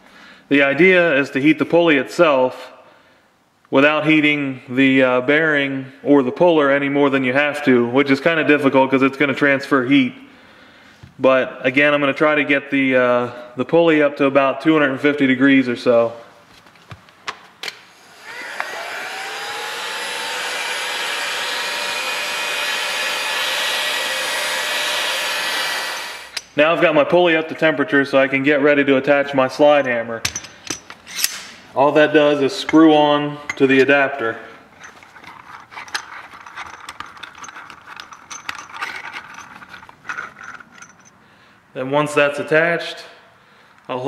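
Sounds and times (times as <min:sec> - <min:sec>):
heat gun fan whine: 0:17.6 - 0:26.6
heat gun switch clicks: 0:18.6 - 0:18.8
small metal clicks and scrapes: 0:34.7 - 0:41.2.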